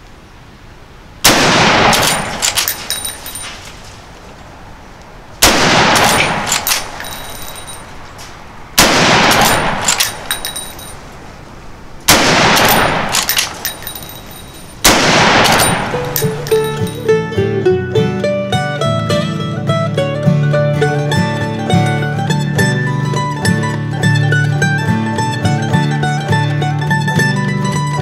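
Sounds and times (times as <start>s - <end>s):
rifle shots: 1.2s - 3.5s, 5.4s - 8.0s, 8.7s - 11.0s, 12.1s - 16.7s
metallic clicks of rifle lever: 1.9s - 3.6s, 5.9s - 8.4s, 9.3s - 11.0s, 12.6s - 14.8s.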